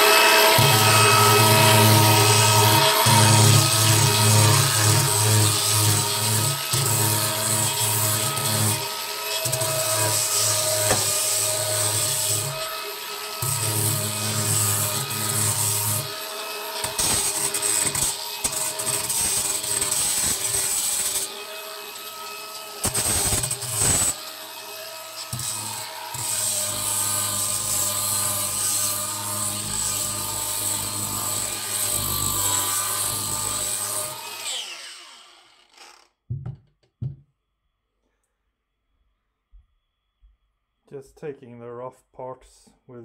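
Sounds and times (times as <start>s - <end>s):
angle grinder sanding wood: 0.0s - 35.6s
grinder motor winding down: 28.8s - 36.1s.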